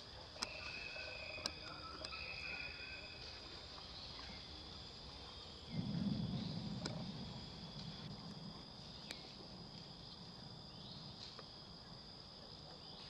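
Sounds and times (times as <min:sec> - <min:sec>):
insect chorus drone: 0:00.0 - 0:13.0
faint click: 0:09.0 - 0:09.9.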